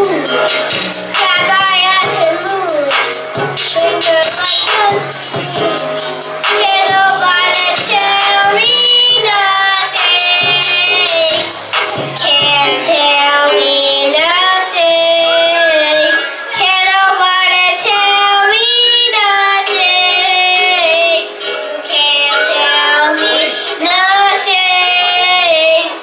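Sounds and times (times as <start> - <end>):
boys singing together: 0.0 - 26.0.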